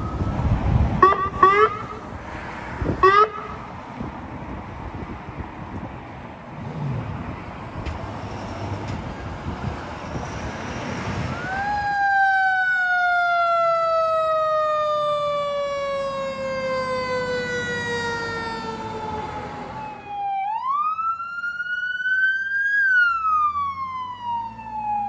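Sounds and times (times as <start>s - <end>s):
fire engine siren: 0.0s - 2.2s, 2.8s - 3.7s, 9.1s - 25.0s
vehicle engine: 0.0s - 22.3s
street traffic: 0.0s - 25.0s.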